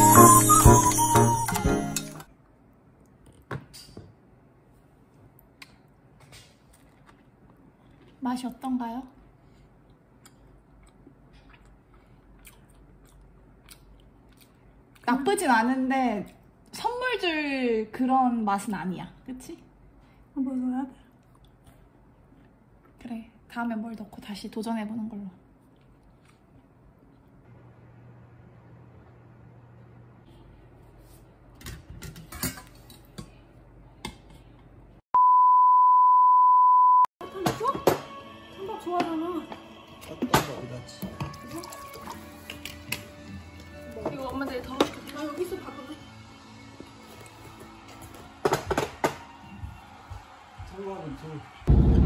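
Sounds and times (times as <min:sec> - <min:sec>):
faint chewing: 0:05.3 - 0:15.1, 0:21.0 - 0:23.0, 0:25.6 - 0:27.4
loud steady beep tone: 0:35.2 - 0:37.1.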